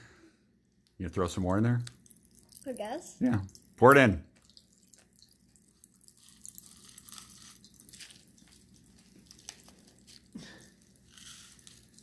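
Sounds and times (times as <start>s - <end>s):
popping candy crackling in a mouth: 3.5s - 12.0s.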